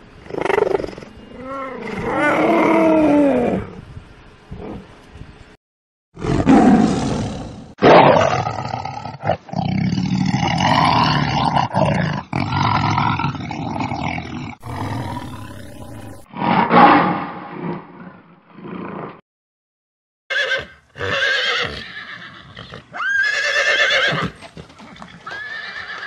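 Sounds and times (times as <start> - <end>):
lion roaring: 6.2 - 19.0.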